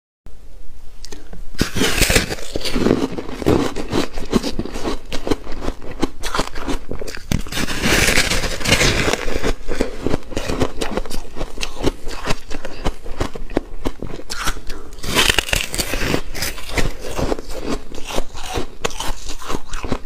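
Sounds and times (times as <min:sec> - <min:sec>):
chewing crunchy ice: 0:01.6 - 0:20.0.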